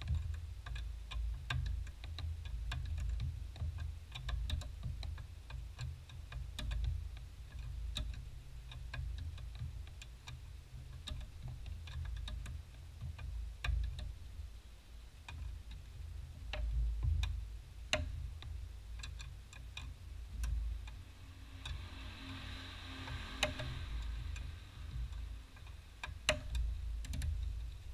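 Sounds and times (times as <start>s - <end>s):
low background rumble: 0.0s - 27.9s
hand ratchet clicking: 23.0s - 27.9s.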